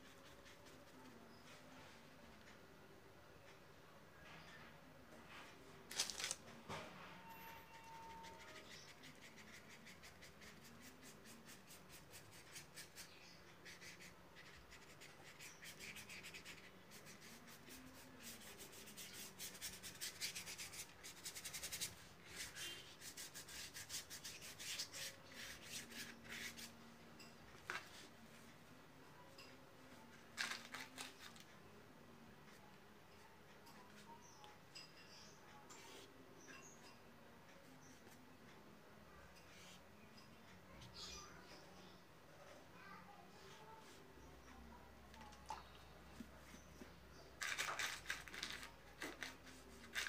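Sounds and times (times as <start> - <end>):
paintbrush scratching on board: 0.0 - 1.9, 7.7 - 26.8.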